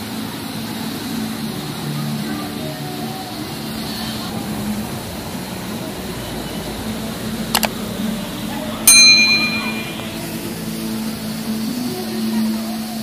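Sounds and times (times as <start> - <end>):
bright bell ding: 8.9 - 10.3.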